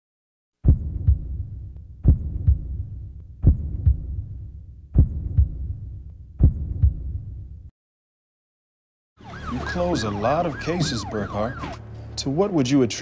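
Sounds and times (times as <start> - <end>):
heartbeat thumps: 0.6 - 7.7
low rumble: 0.6 - 7.7.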